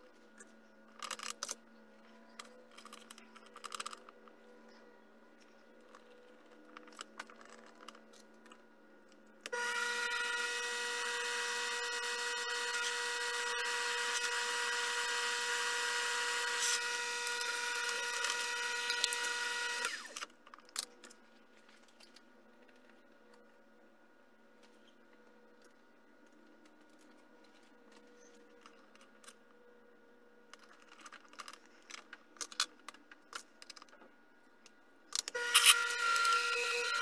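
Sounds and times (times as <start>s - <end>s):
lathe motor whining: 9.5s - 20.2s, 35.3s - 37.0s.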